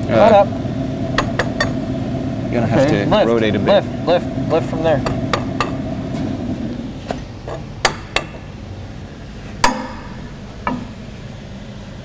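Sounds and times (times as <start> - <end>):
metal pipe clanking: 1.1 - 1.8, 5.0 - 5.8, 9.6 - 11.1.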